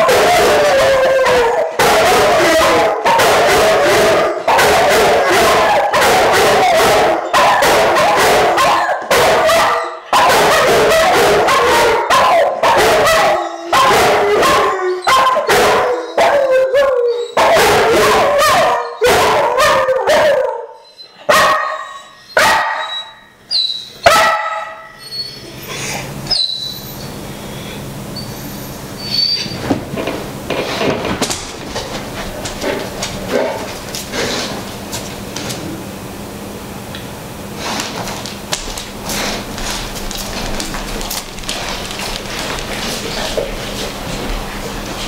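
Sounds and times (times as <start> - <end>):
dogs howling together: 0.0 - 21.0.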